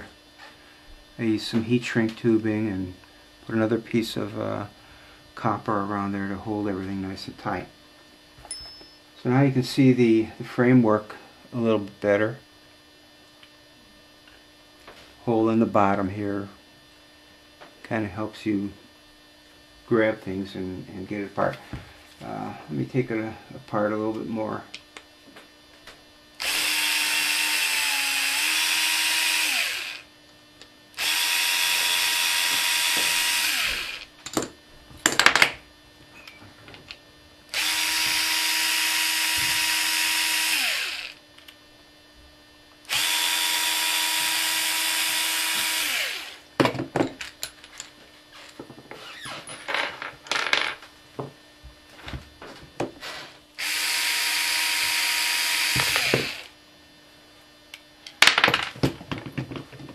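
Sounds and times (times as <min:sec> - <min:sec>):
cordless drill running: 0:26.4 - 0:30.1, 0:31.0 - 0:34.1, 0:37.5 - 0:41.2, 0:42.9 - 0:46.4, 0:53.6 - 0:56.6.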